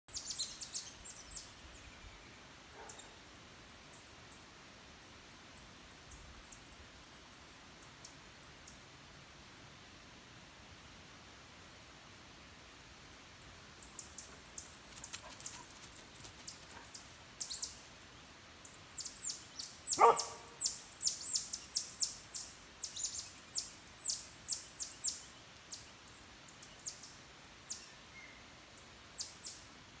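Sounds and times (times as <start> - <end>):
short lower bark: 20.0 - 20.6.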